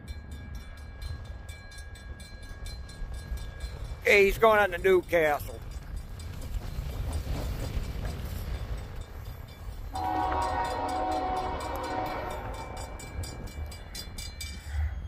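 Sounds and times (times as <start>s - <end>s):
low train rumble: 0.0s - 15.0s
locomotive air horn chord: 9.9s - 12.8s.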